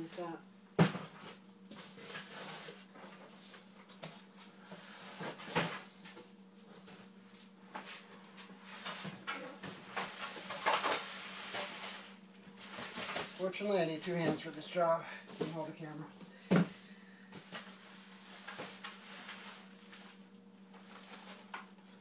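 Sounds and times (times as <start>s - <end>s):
steady low hum: 0.0s - 22.0s
packaging rustling and scraping: 7.9s - 13.6s, 17.4s - 21.8s.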